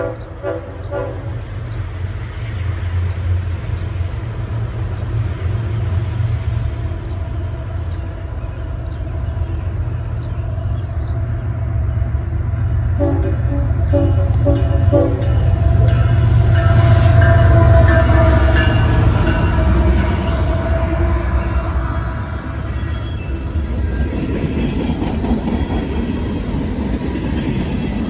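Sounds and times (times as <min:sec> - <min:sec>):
locomotive horn: 0:00.0 - 0:01.5, 0:12.9 - 0:23.2
diesel locomotives rumbling: 0:00.0 - 0:28.0.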